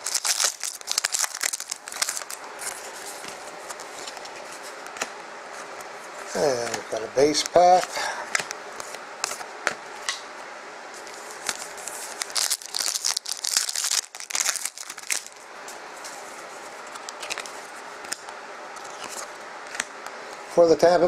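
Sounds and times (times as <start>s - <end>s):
plastic wrapper crinkling and tearing: 0.0s - 2.9s, 11.4s - 15.4s, 16.9s - 17.6s
clicks and rustles of cards: 16.9s - 19.9s.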